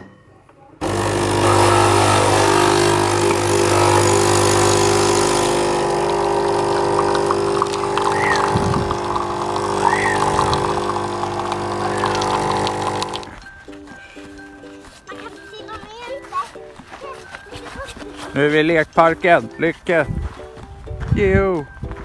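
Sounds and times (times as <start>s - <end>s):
coffee machine pump buzzing: 0.8s - 13.3s
coffee pouring into cup: 0.8s - 13.3s.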